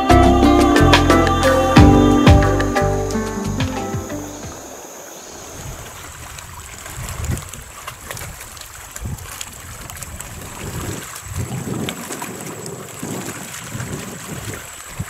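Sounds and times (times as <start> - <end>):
water lapping and trickling: 3.1 - 15.0
wind gusts on microphone: 3.8 - 15.0.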